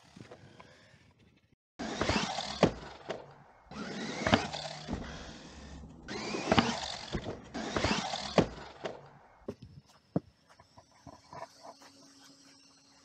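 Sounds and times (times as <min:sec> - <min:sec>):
rc truck motor running: 0:01.8 - 0:09.4
rc truck landing thumps: 0:01.9 - 0:09.6.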